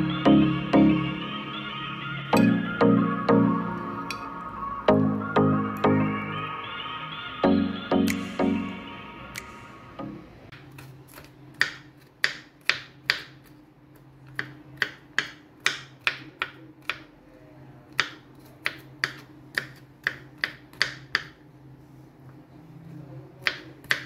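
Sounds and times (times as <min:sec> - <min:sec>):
knife chopping on wooden board: 0:10.8 - 0:13.4.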